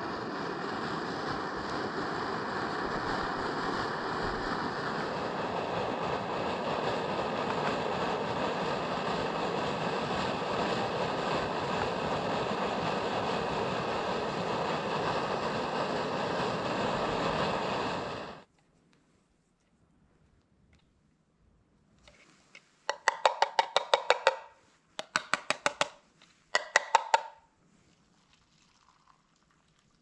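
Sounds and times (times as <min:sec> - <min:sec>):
surf on seashore: 0:00.0 - 0:18.4
wind rushing: 0:00.0 - 0:18.4.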